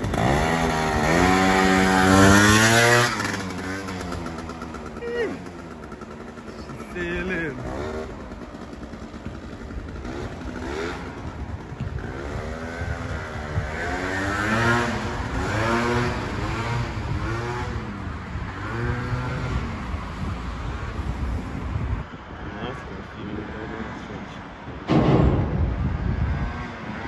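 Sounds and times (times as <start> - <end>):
scooter engine revving: 0.0 - 20.2.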